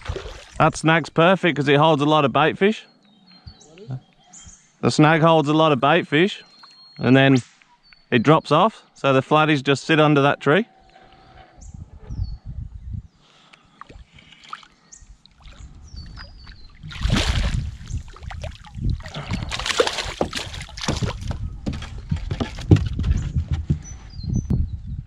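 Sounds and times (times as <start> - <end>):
fish splashing at surface: 0.0 - 0.6, 16.8 - 21.4
fish flopping on deck: 16.5 - 23.3.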